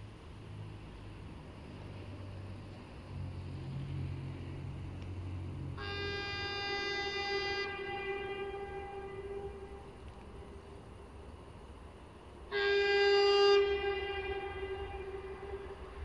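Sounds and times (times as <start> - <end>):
low steady hum: 2.6 - 16.0
locomotive air horn blast: 3.4 - 16.0.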